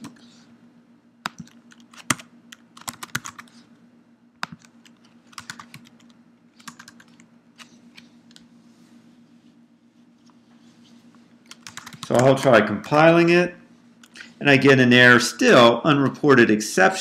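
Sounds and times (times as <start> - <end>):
faint low hum: 0.0 - 17.0
keyboard typing: 1.2 - 3.5, 4.4 - 8.5, 11.4 - 13.0.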